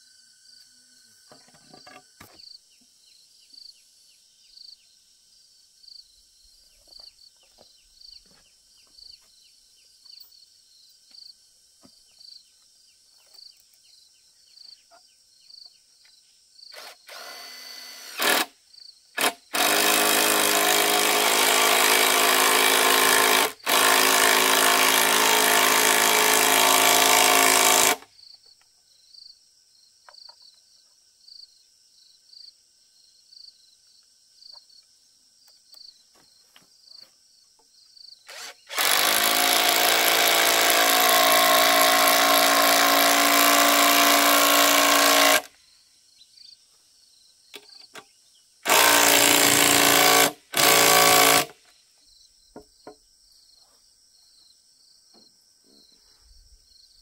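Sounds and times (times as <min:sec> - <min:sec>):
insects chirping: 0:00.0 - 0:57.0
cordless drill driving screws: 0:16.7 - 0:18.5, 0:19.2 - 0:28.1, 0:38.3 - 0:45.5, 0:48.6 - 0:51.6.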